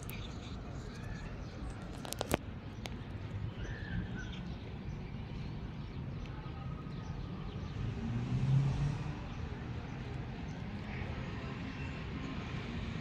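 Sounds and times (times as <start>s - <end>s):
distant traffic rumble: 0.0s - 13.0s
vehicle passing: 7.6s - 13.0s.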